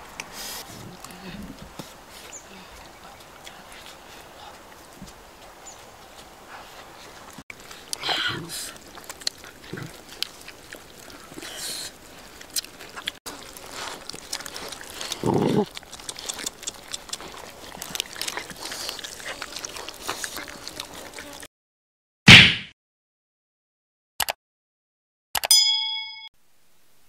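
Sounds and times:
dogs crunching fish bones: 0.5 - 21.5.

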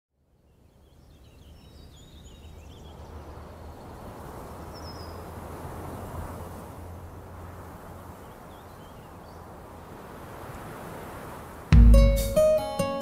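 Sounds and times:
small birds chirping: 0.4 - 5.5, 7.8 - 9.6.

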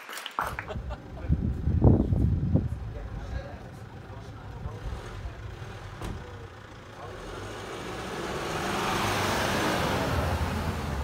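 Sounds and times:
car engine rumble: 0.4 - 11.0
car tyres on cobblestones: 0.4 - 11.0.

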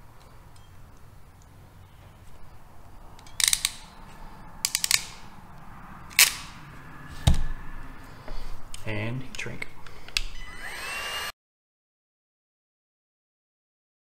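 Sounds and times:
ratcheting crimping tool clicking: 3.2 - 4.0, 4.6 - 5.2.

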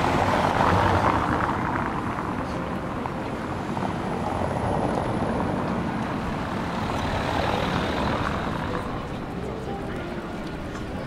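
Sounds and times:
city street noise: 0.0 - 11.0
engine rumble: 0.0 - 11.0.

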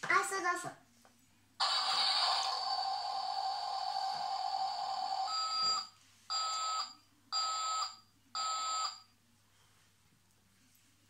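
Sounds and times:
toy electronic siren tone: 1.6 - 5.5.

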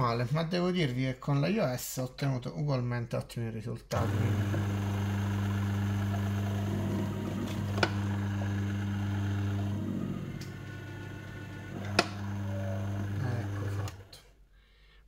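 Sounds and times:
machine motor humming: 3.9 - 14.2.

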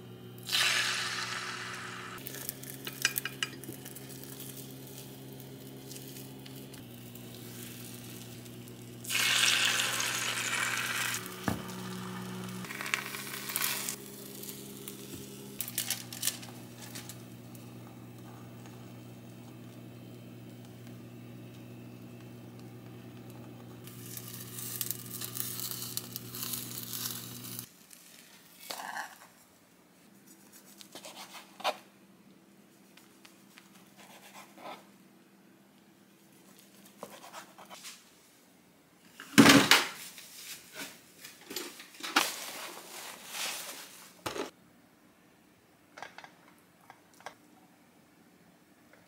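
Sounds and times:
steady low hum: 0.0 - 27.7
omelette hissing in a pan: 0.4 - 2.8, 7.0 - 15.6.

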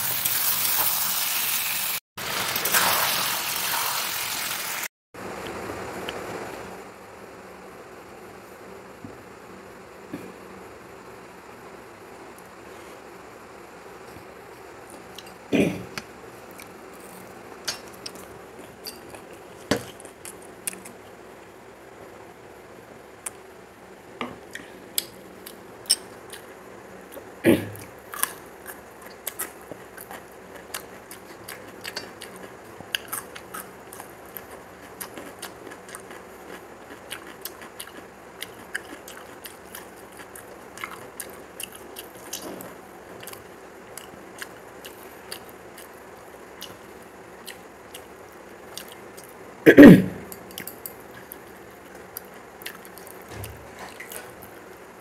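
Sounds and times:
chewing and crunching: 24.6 - 49.4, 50.4 - 55.0.

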